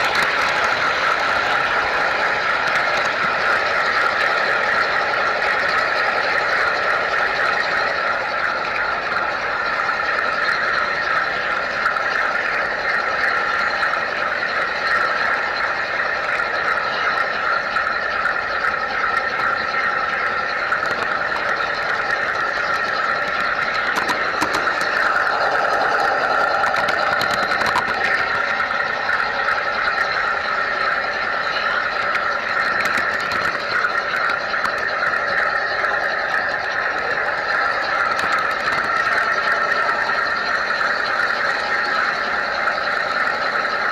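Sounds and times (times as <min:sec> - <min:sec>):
model train wheels on rails: 0:00.0 - 0:43.9.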